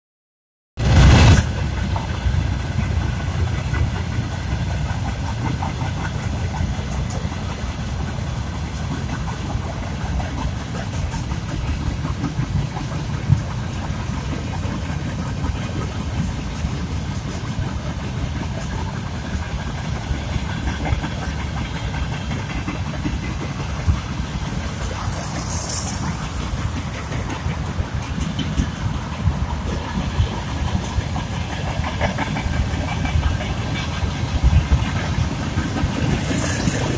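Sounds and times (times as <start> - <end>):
freight train rumbling past: 0.8 - 36.9
high-pitched squeal: 23.9 - 28.2, 36.0 - 36.9.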